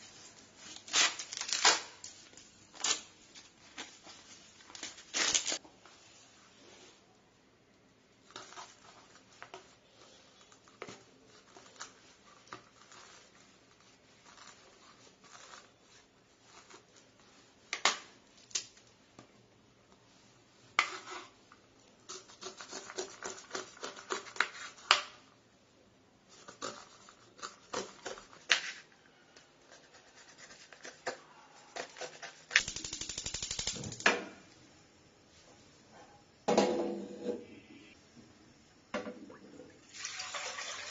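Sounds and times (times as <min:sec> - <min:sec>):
knife scraping corn cob: 0:22.1 - 0:25.0, 0:29.7 - 0:32.6.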